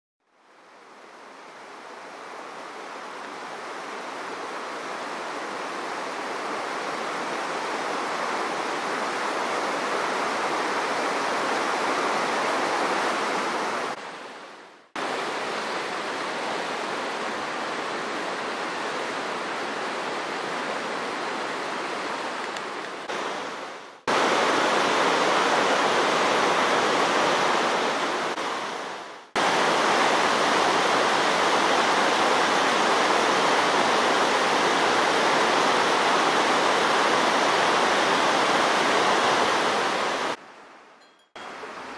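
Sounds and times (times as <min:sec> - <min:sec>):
river rushing over rocks: 0:00.4 - 0:40.7, 0:41.4 - 0:41.9.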